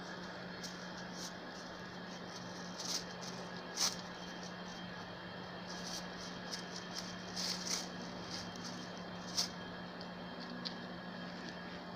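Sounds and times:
steady low hum: 0.0s - 11.9s
dry leaves rustling and crackling: 0.2s - 4.8s, 5.7s - 9.6s.

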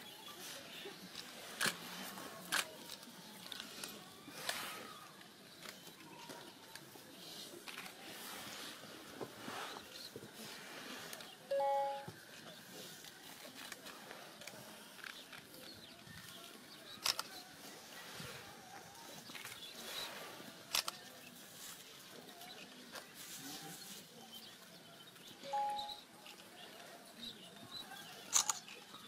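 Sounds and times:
crowd rustling and shuffling: 0.0s - 29.0s
bird chirps: 25.4s - 26.1s.

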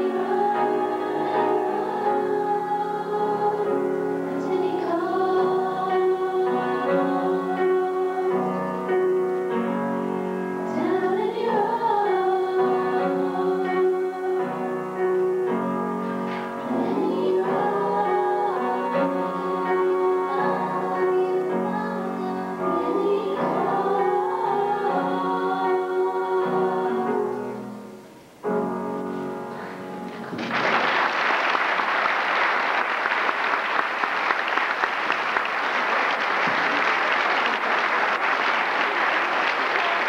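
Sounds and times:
women singing in harmony: 0.0s - 9.7s, 10.6s - 27.9s
audience applause: 30.2s - 40.0s.

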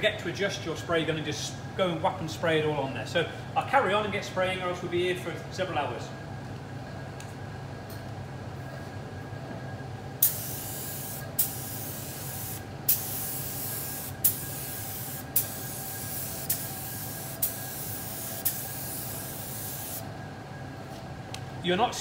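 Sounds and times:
steady low hum: 0.0s - 22.0s
spray gun hissing: 10.2s - 20.1s.

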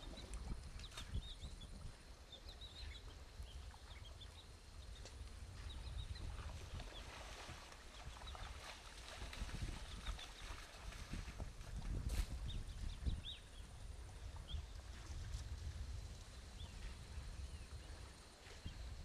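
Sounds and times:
water sloshing and splashing: 6.2s - 12.1s.

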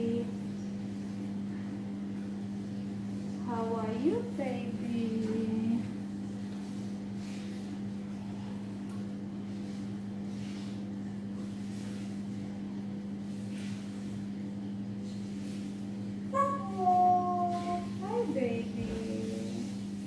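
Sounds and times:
appliance electrical hum: 0.0s - 20.0s.

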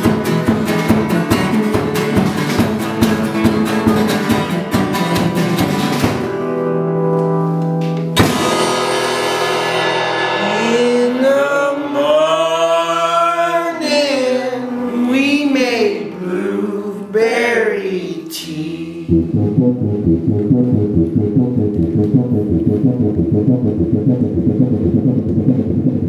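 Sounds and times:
folk band playing: 0.0s - 12.9s, 19.1s - 23.4s
acoustic guitar: 0.0s - 16.5s
sliding pitch melody: 19.0s - 26.0s.

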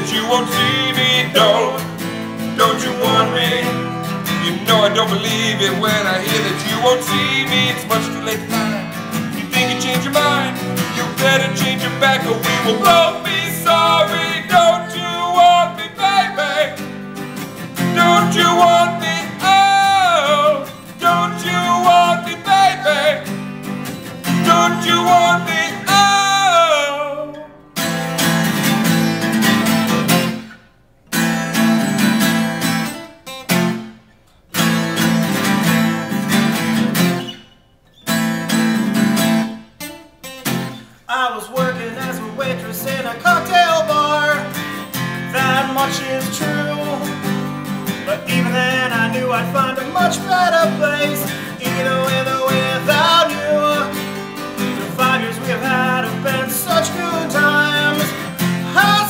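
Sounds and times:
man singing: 0.0s - 16.9s, 17.6s - 23.4s, 24.2s - 27.6s, 41.1s - 59.0s
acoustic guitars strummed: 0.0s - 59.0s.

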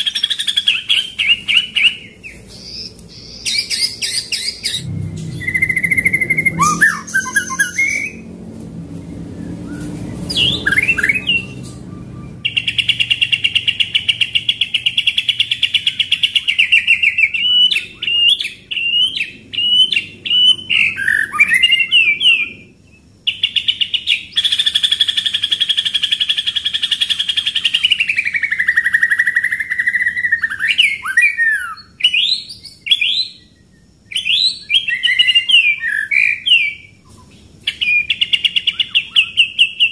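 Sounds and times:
bird rolling trills: 0.0s - 8.3s
bird singing: 0.0s - 39.9s.

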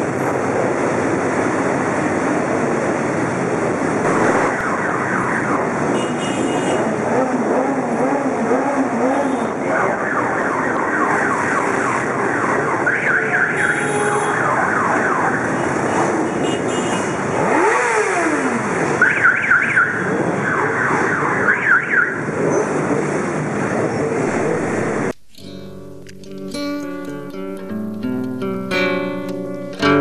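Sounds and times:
motorcycle engines revving: 2.6s - 12.8s, 14.4s - 26.3s
high warbling siren tone: 4.1s - 5.8s, 24.2s - 26.0s.

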